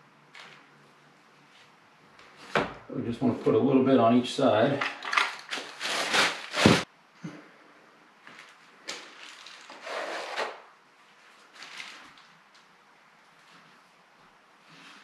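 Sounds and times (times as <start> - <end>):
drywall knife scraping: 9.7 - 10.6.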